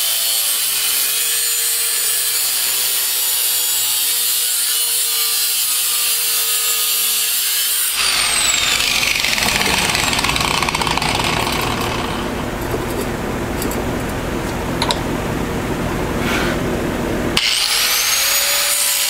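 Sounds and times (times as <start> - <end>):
angle grinder cutting steel: 0.0 - 12.6, 17.4 - 19.0
rough clatter: 8.0 - 13.8.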